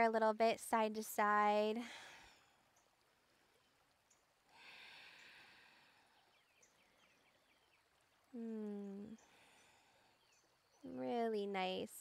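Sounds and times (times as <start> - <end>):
soft breath out: 4.5 - 6.3.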